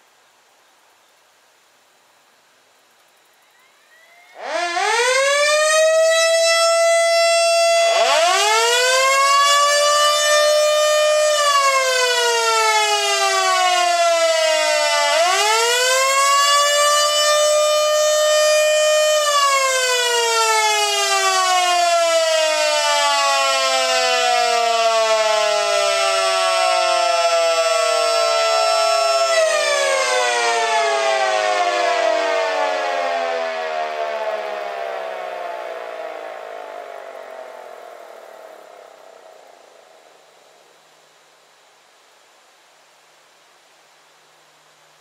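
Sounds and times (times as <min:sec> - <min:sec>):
siren steady alert tone: 0:03.4 - 0:39.4
siren winding up and down: 0:03.5 - 0:11.5.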